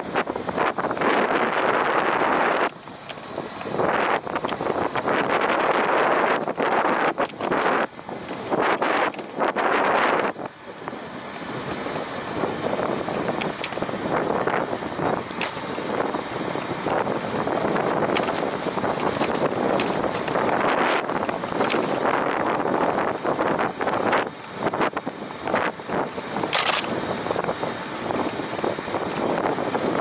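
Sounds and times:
wind rushing over microphone: 0:00.0 - 0:30.0
short clicks: 0:26.5 - 0:27.0.

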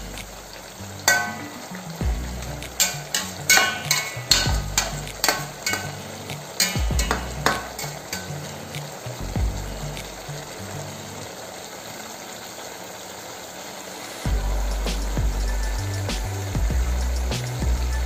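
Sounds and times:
music with deep beat: 0:00.0 - 0:00.7, 0:01.3 - 0:10.6, 0:14.3 - 0:18.0
oil sizzling: 0:00.0 - 0:18.0
skimmer clinking against pot: 0:01.0 - 0:01.7, 0:02.8 - 0:08.4.

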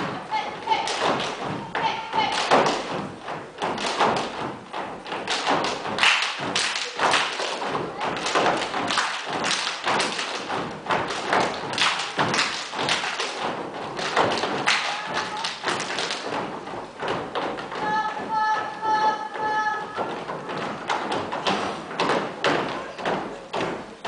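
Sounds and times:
rubber boots stamping on wood: 0:19.5 - 0:24.0.

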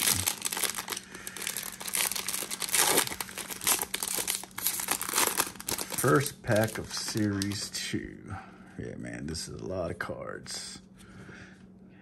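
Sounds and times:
foil wrapper crinkling and tearing: 0:00.0 - 0:07.8.

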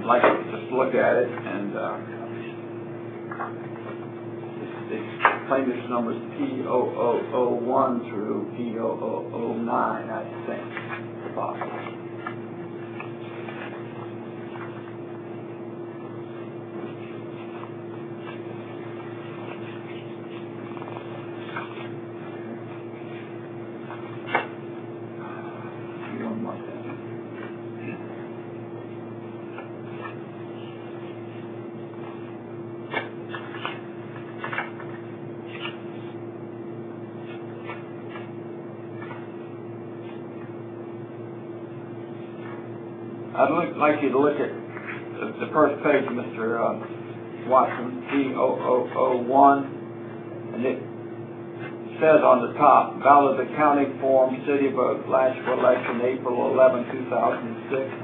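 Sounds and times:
electrical hum: 0:00.0 - 0:58.0
paper pages rustling: 0:10.7 - 0:14.9, 0:16.8 - 0:23.2, 0:32.9 - 0:36.2, 0:37.2 - 0:39.4.

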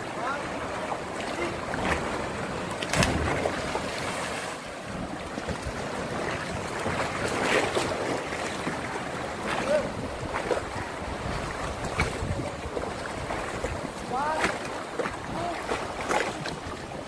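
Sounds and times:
sea water lapping: 0:00.0 - 0:17.0
splash into water: 0:01.2 - 0:04.7
wind buffeting microphone: 0:08.8 - 0:14.4.

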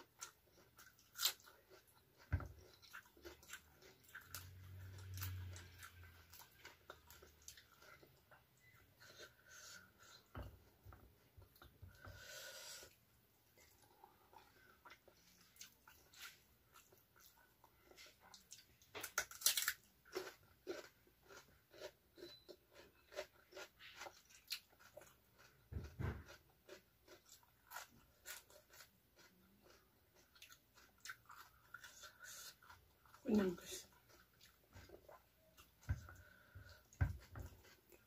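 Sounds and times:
person crunching raw vegetables: 0:00.0 - 0:10.2, 0:13.6 - 0:38.0.

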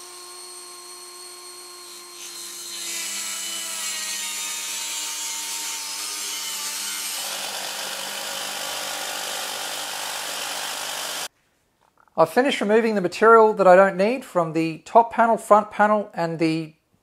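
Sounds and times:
jigsaw sawing through steel: 0:00.0 - 0:11.3
rotary tool cutting sheet steel: 0:00.0 - 0:11.3.

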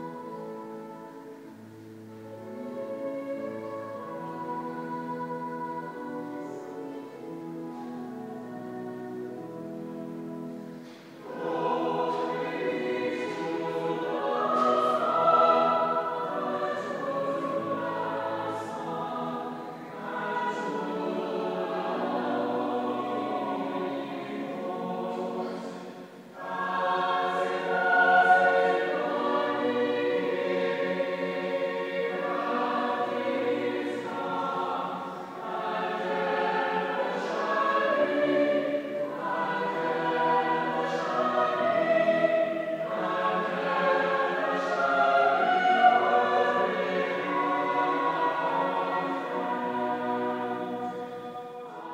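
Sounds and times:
choir singing in harmony: 0:00.0 - 0:51.9.

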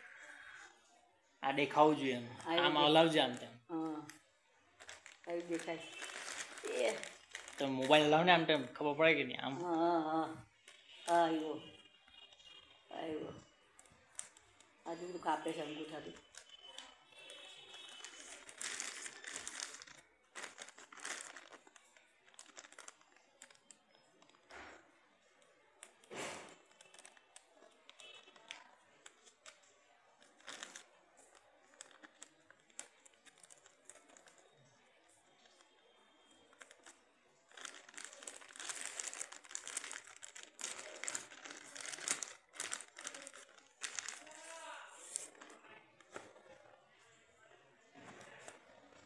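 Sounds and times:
plastic mailer bag crinkling: 0:04.8 - 0:08.3, 0:15.3 - 0:24.8, 0:26.0 - 0:29.6, 0:30.2 - 0:34.5, 0:36.5 - 0:46.3.

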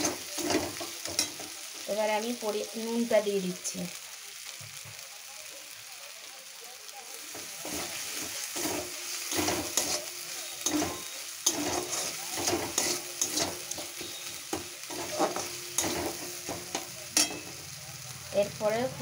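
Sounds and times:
metal spatula scraping a pan: 0:00.0 - 0:01.8, 0:07.3 - 0:17.6
hot oil sizzling: 0:00.0 - 0:19.0.

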